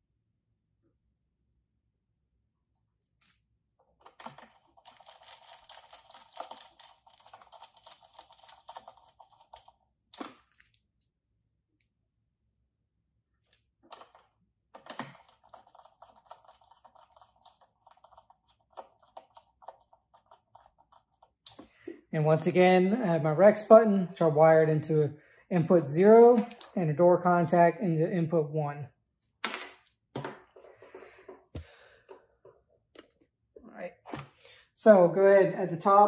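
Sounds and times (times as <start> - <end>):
screwdriver clicking and scratching: 4.0 - 10.8, 13.5 - 21.6.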